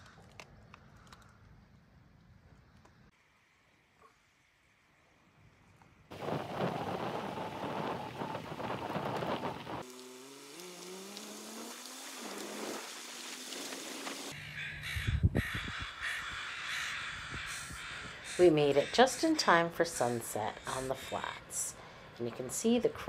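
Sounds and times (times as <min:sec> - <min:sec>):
noisy rush: 0:06.1 - 0:09.8
vehicle engine on gravel road: 0:06.1 - 0:14.3
crows cawing: 0:14.3 - 0:21.4.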